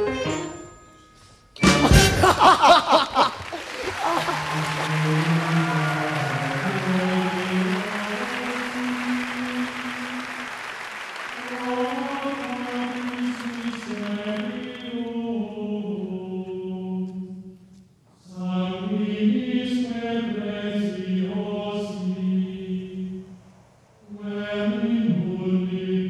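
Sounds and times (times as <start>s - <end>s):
slow choir-like music: 1.6s - 26.0s
applause: 2.3s - 14.9s.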